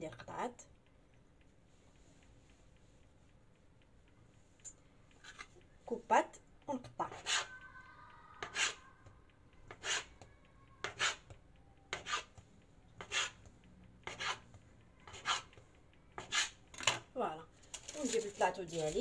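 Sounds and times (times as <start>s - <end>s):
bench scraper on marble counter: 7.1s - 7.5s, 8.4s - 8.8s, 9.7s - 10.1s, 10.8s - 11.2s, 11.9s - 12.3s, 13.0s - 13.4s, 14.0s - 14.4s, 15.1s - 15.5s, 16.2s - 16.6s.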